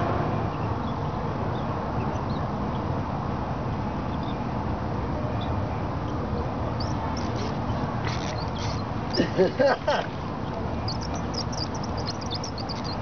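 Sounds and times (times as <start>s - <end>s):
low background rumble: 5.7s - 13.0s
faint bird chirps: 10.4s - 13.0s.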